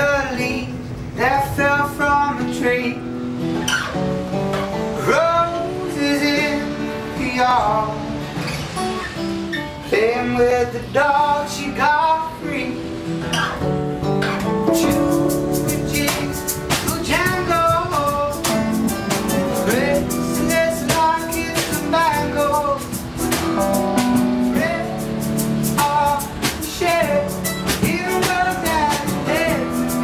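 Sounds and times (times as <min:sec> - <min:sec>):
strummed acoustic guitar: 0:00.0 - 0:30.0
person singing: 0:14.7 - 0:30.0.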